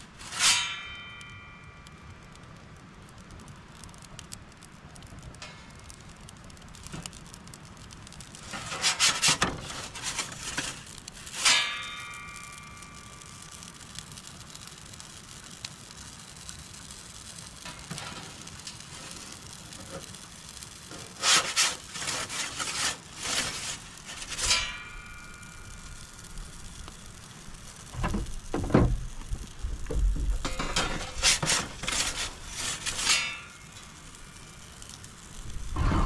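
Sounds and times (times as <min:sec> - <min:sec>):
charcoal fire hiss: 0:00.0 - 0:36.0
metal peel scraping stone: 0:00.2 - 0:01.0, 0:08.4 - 0:12.0, 0:20.9 - 0:25.1, 0:30.4 - 0:35.0
ringing metallic clang: 0:00.4 - 0:01.9.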